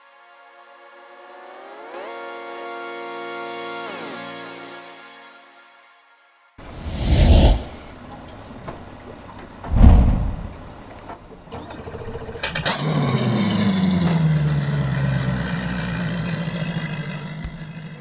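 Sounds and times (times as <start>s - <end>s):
deep whoosh and boom: 9.7s - 10.8s
boat engine starting and running: 10.6s - 18.0s.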